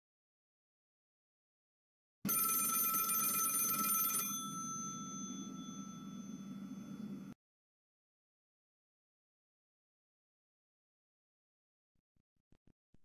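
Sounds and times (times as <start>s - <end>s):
telephone bell ringing: 2.3s - 7.4s.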